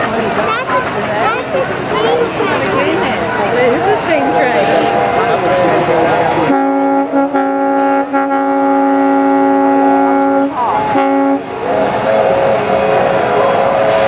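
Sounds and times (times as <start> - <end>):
steam locomotive chime whistle: 6.5 - 14.0.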